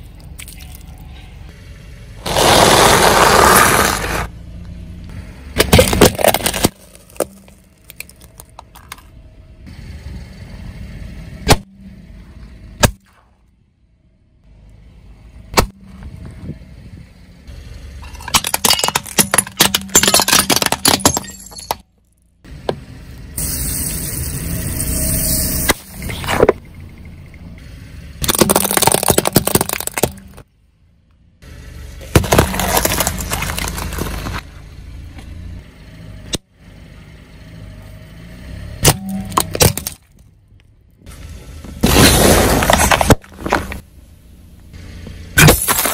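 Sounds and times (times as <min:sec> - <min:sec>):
tyre crushing objects: 0:02.2 - 0:04.3, 0:05.6 - 0:08.6, 0:28.2 - 0:30.4, 0:32.0 - 0:34.4, 0:41.8 - 0:43.8
crunching and crackling: 0:05.6 - 0:09.0, 0:28.2 - 0:30.4, 0:32.0 - 0:34.4, 0:41.8 - 0:43.8.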